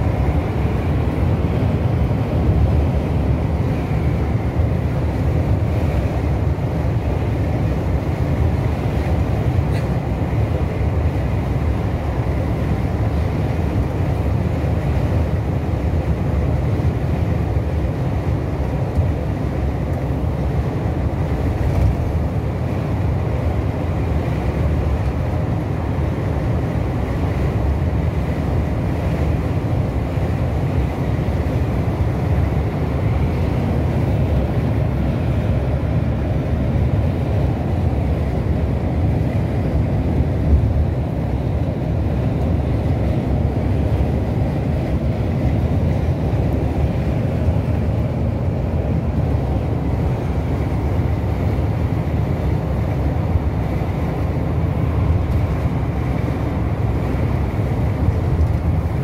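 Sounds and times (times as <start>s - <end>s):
engine and tyre rumble: 0.0s - 59.0s.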